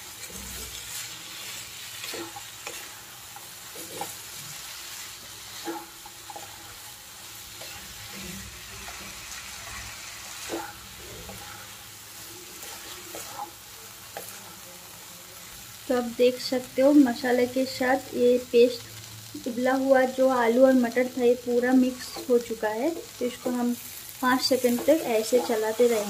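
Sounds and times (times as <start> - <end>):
spatula scraping a pan: 0.0 - 14.6, 21.6 - 26.0
frying sizzle: 0.0 - 26.0.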